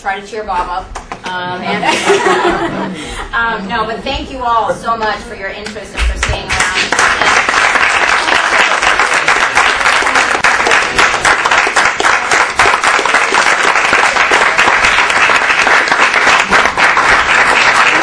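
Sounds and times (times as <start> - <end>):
audience applauding: 6.3 - 18.0.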